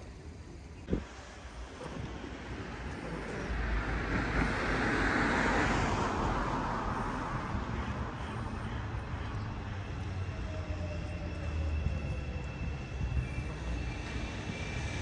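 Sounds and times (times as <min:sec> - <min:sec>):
low rumble of street traffic: 0:00.0 - 0:15.0
car passing by: 0:01.8 - 0:10.3.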